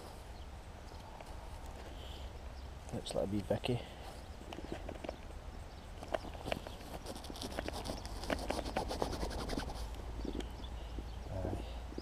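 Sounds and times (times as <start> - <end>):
stones and soil knocking and scraping: 4.4 - 5.3, 6.0 - 8.8.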